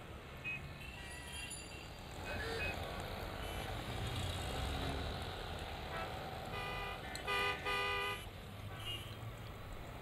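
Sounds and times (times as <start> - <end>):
street traffic: 0.0 - 10.0
vehicle horns tooting: 6.0 - 9.2.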